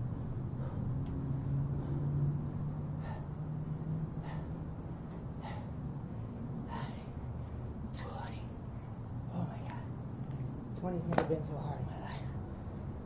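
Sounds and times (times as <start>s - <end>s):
low steady hum: 0.0s - 13.0s
man gasping breaths: 0.5s - 7.4s.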